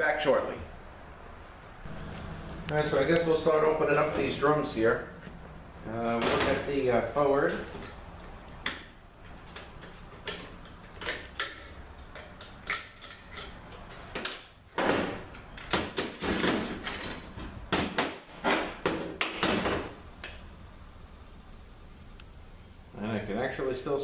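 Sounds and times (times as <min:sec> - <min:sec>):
metal parts clanking and scraping: 0:10.3 - 0:14.4, 0:16.2 - 0:17.4.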